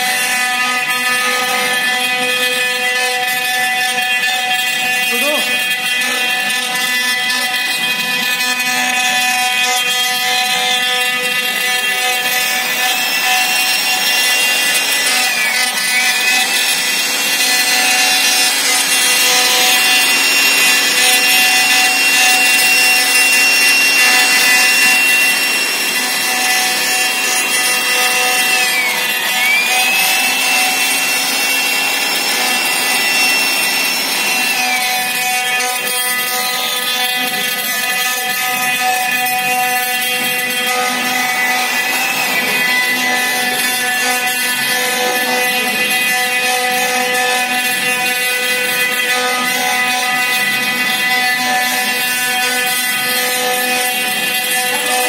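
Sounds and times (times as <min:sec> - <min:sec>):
router spindle whining: 0:00.0 - 0:55.0
hiss of bit cutting wood: 0:12.0 - 0:35.6, 0:40.8 - 0:45.5.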